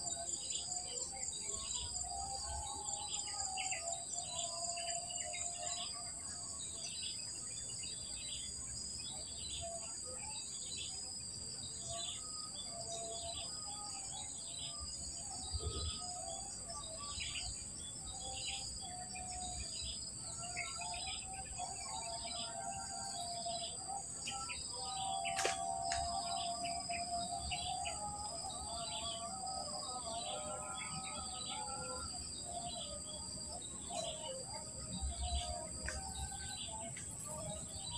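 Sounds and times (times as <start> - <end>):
bird falling call: 25.2 - 26.1.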